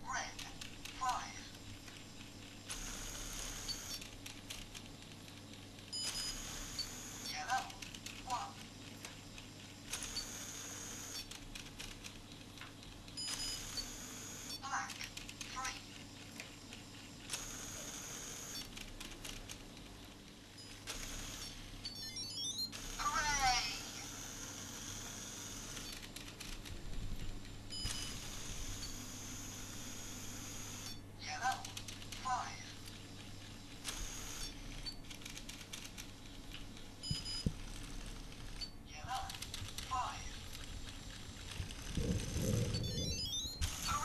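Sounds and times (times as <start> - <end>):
steady low hum: 0.0 - 44.0
electronic beeps changing pitch: 21.9 - 22.7, 42.5 - 44.0.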